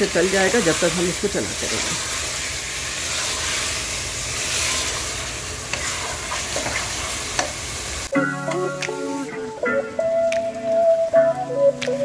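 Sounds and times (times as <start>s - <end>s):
meat sizzling in hot oil: 0.0s - 8.1s.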